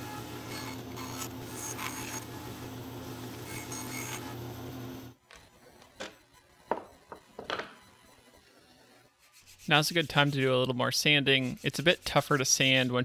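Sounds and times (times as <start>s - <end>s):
bandsaw cutting wood: 0.1s - 2.5s.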